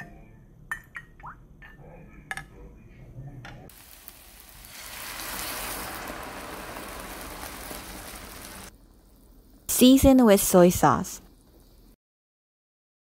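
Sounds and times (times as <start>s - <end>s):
stock sizzling and bubbling: 3.7s - 12.0s.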